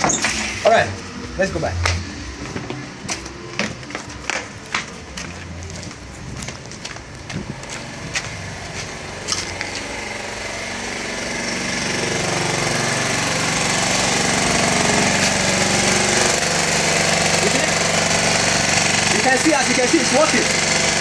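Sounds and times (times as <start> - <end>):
portable generator engine running: 0.0 - 21.0.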